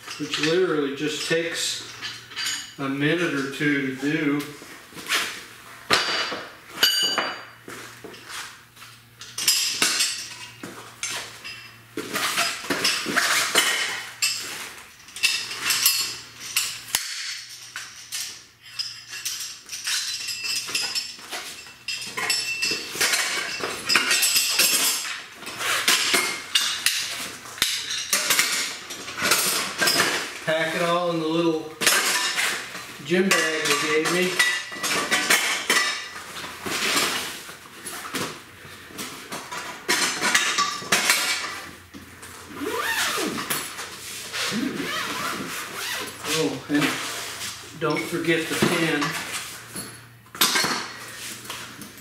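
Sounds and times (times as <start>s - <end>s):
metal tubes clinking: 15.0s - 31.0s.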